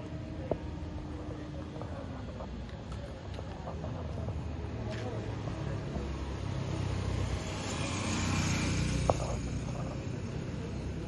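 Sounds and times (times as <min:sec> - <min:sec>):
vehicle driving past: 0:05.2 - 0:11.0.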